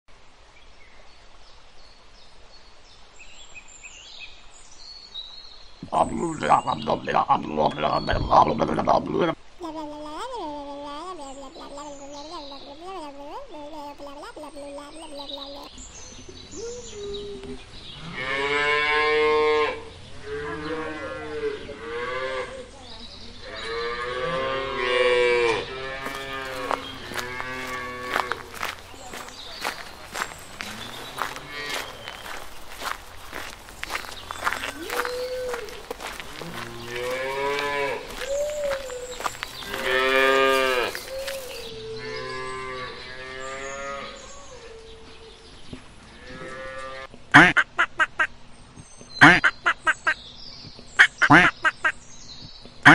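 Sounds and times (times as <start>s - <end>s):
low steady hiss: 0.1s - 15.1s
cows mooing: 23.7s - 28.8s, 30.5s - 32.4s, 34.4s - 41.4s
faint bird chirps: 38.1s - 45.5s.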